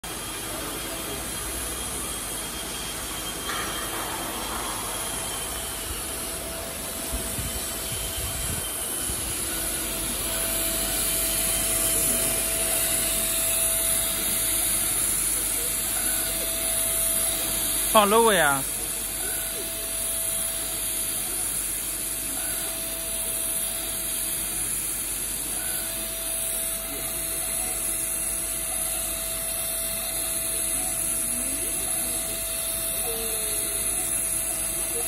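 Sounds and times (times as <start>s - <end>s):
router spindle whine: 4.3s - 20.8s.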